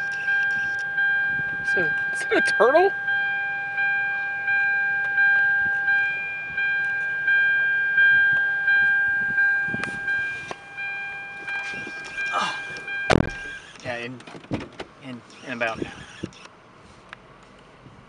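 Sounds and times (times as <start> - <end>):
car door warning chime: 0.0 - 14.1.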